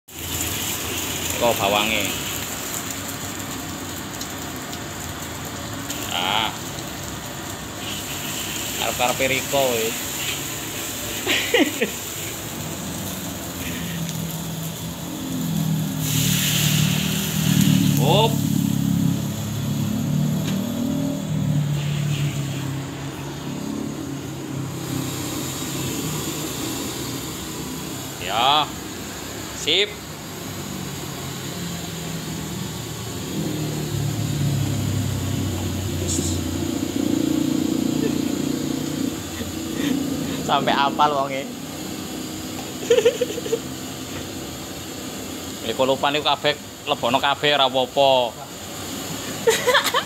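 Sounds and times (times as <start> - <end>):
egg sizzling in hot oil: 0.0 - 50.0
low motor drone: 12.5 - 28.2, 30.0 - 42.4.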